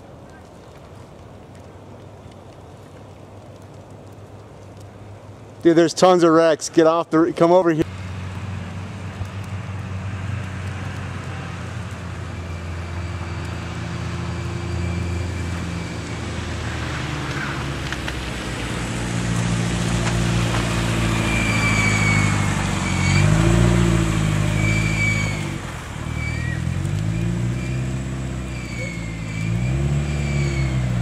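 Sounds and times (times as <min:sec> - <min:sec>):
car engines in traffic: 0:07.8 - 0:31.0.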